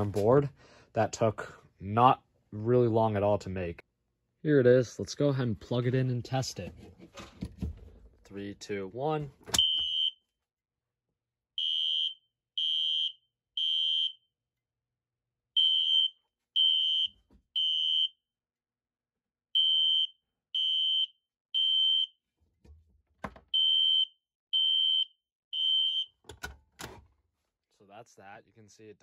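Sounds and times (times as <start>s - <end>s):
fire alarm horn blasts: 9.6s - 10.2s, 11.6s - 14.2s, 15.6s - 18.1s, 19.6s - 22.1s, 23.6s - 26.1s.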